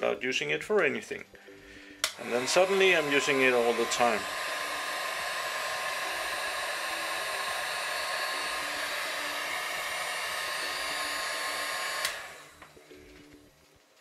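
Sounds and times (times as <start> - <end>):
heat gun switch click: 2.0 - 2.7, 12.0 - 12.3
heat gun blowing hot air: 2.0 - 12.7.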